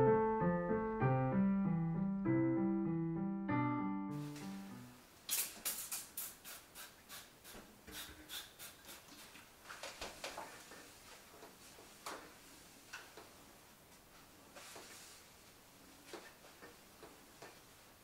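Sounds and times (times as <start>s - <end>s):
cloth rubbing on refrigerator: 14.5s - 15.5s.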